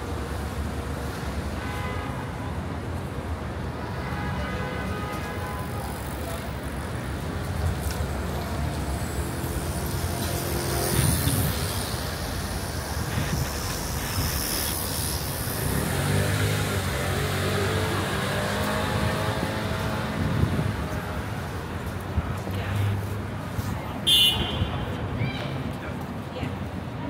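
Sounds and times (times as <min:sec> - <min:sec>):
street traffic rumble: 0:00.0 - 0:27.0
louder engine hum: 0:08.3 - 0:21.2.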